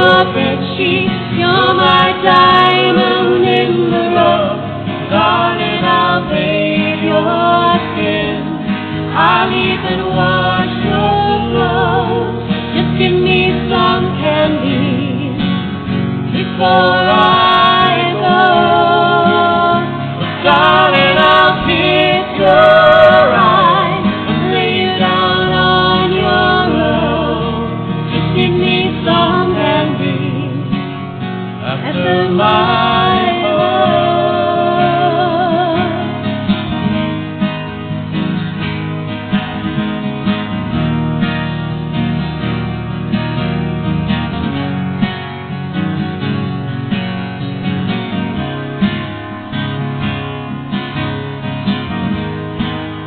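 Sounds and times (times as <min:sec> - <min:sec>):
person singing with vibrato: 0:00.0 - 0:15.6, 0:16.4 - 0:30.8, 0:31.6 - 0:36.3
acoustic guitar: 0:00.0 - 0:53.0.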